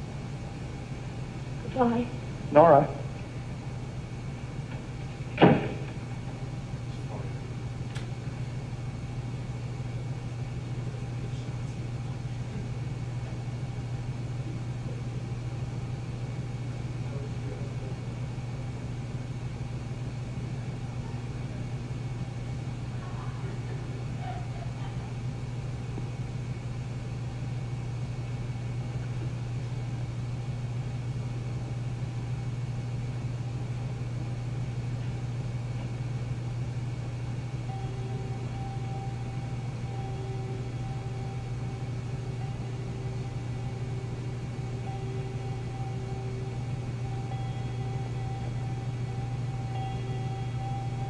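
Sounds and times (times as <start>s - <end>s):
low hum with hiss: 0.0s - 51.0s
faint steady tone: 37.5s - 51.0s.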